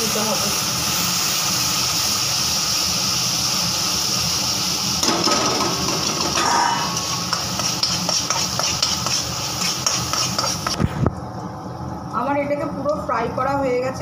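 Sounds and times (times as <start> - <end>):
paste sizzling in hot oil: 0.0 - 10.8
metal spatula scraping pan: 5.0 - 10.8.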